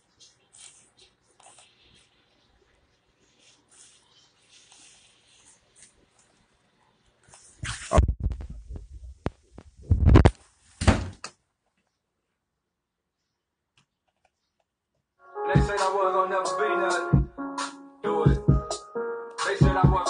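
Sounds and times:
music: 15.2 - 20.0.

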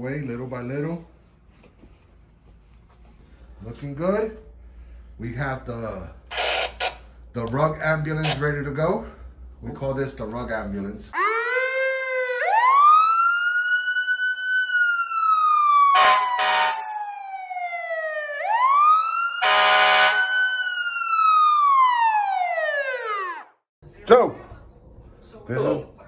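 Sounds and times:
wailing siren: 6.3 - 7.1, 11.1 - 23.7
short harsh horn blasts: 16.0 - 16.8, 19.4 - 20.3.

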